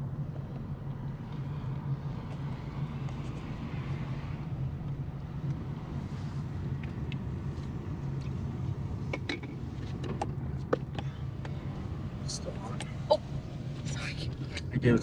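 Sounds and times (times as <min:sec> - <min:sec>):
car engine hum: 0:00.0 - 0:15.0
road noise: 0:00.0 - 0:15.0.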